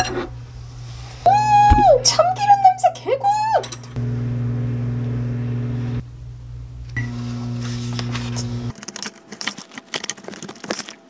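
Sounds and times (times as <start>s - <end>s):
kitchen appliance humming: 0.0s - 8.7s.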